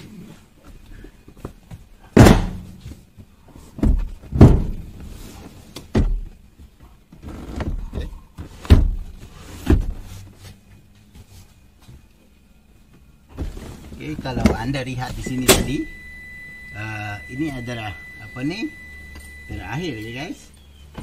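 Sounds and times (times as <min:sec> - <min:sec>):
seat mechanism thuds and clunks: 0:02.1 - 0:03.0, 0:03.8 - 0:10.1, 0:13.3 - 0:19.7.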